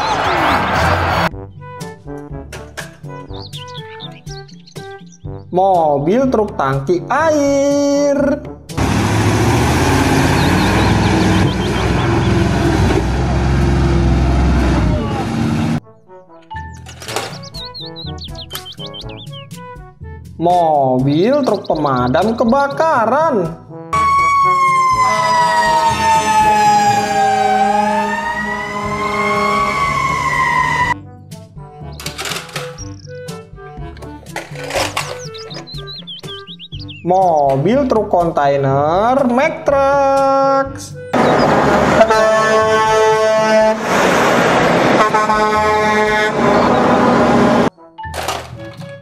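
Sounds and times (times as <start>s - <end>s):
fire engine siren wailing: 0.0s - 1.3s, 8.8s - 15.8s, 24.0s - 31.0s, 41.2s - 47.7s
truck air horn blasting: 25.0s - 31.0s, 41.2s - 47.7s.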